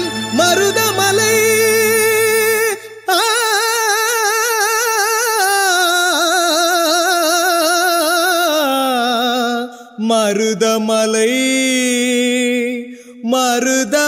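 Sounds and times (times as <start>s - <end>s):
person singing long wavering note: 0.0s - 3.3s.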